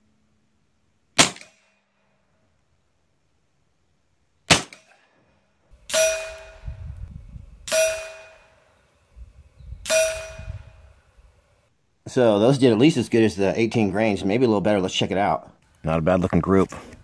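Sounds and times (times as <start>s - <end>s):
air rifle crack: 4.5s - 5.2s.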